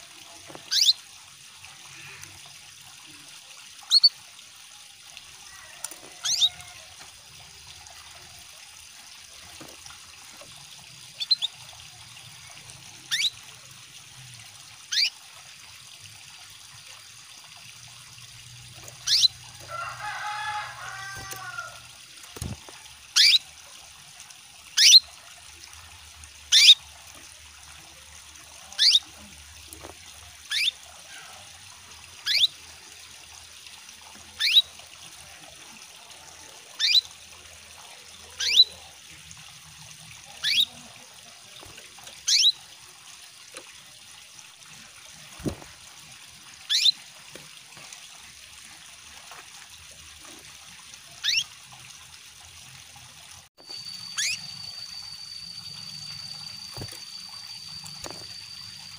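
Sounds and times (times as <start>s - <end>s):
running water trickling: 0.0s - 58.9s
bird chirping: 0.7s - 1.0s, 11.2s - 11.5s, 19.0s - 19.4s, 53.6s - 58.9s
bird twittering: 0.7s - 1.0s, 3.9s - 4.1s, 6.2s - 6.6s, 11.2s - 11.5s, 13.1s - 13.3s, 14.9s - 15.1s, 19.0s - 19.4s, 23.2s - 23.4s, 24.8s - 25.0s, 26.5s - 26.8s, 28.8s - 29.0s, 30.5s - 30.8s, 32.3s - 32.5s, 38.4s - 38.7s, 40.4s - 40.7s, 42.3s - 42.5s, 46.7s - 46.9s, 51.2s - 51.5s, 53.7s - 58.9s.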